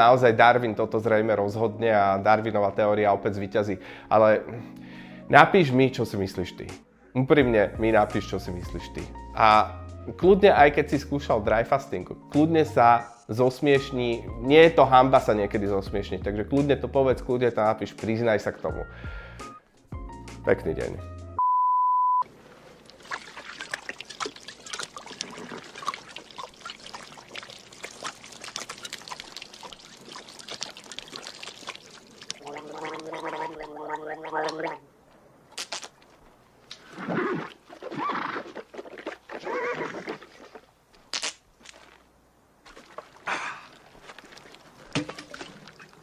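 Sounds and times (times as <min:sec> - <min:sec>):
strained hoarse cry: 0:31.6 - 0:34.9
raspy vocal outbursts: 0:32.4 - 0:34.9.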